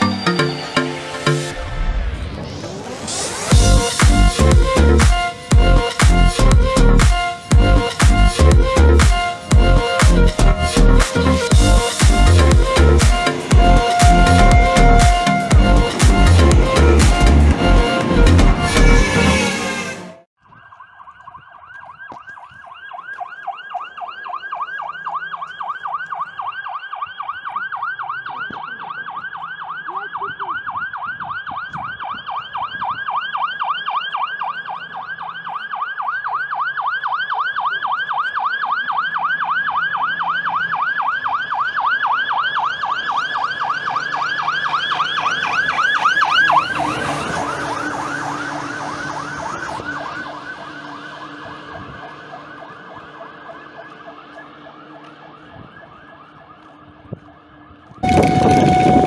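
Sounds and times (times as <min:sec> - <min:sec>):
fire engine siren yelping: 0:00.0 - 0:59.0.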